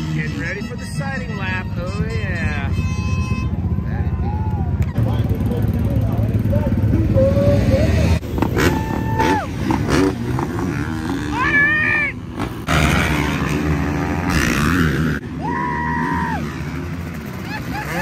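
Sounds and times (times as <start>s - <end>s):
motocross bike engines revving: 0.0s - 18.0s.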